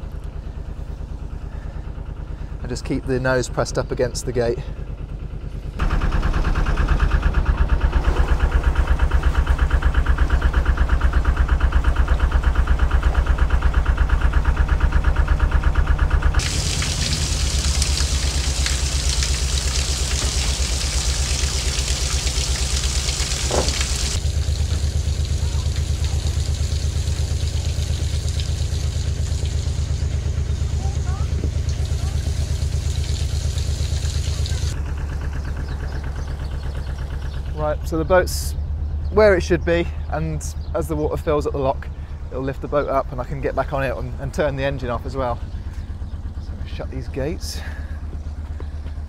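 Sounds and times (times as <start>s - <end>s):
diesel engine running at low revs: 0.0s - 49.0s
rushing hiss: 16.4s - 24.2s.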